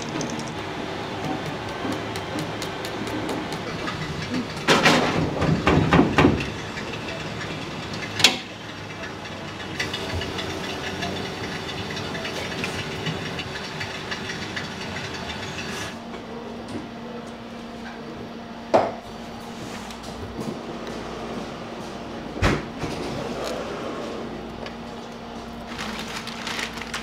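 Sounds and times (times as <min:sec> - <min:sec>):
utensils clattering against pot: 0:02.2 - 0:16.0.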